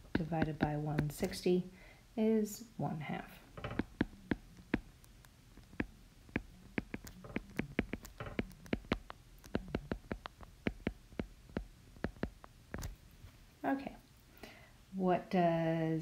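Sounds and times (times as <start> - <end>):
stylus tapping on glass screen: 0.0 - 1.4, 3.6 - 13.0.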